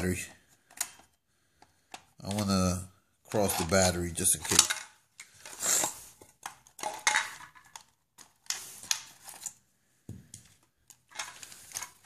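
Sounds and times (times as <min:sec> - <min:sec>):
hard plastic clicks and clatters: 0:00.0 - 0:02.8, 0:03.4 - 0:09.6.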